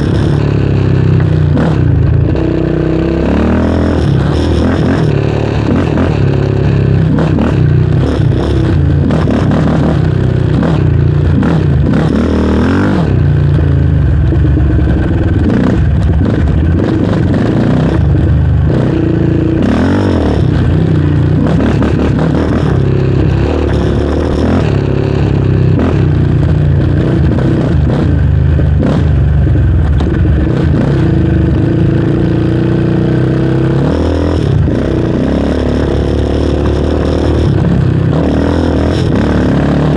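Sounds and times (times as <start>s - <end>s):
quad bike engine revving: 0.0s - 39.9s.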